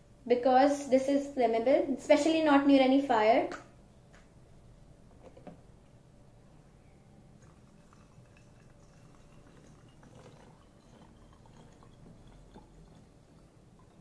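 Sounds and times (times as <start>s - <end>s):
liquid trickling into bottle: 7.4s - 14.0s.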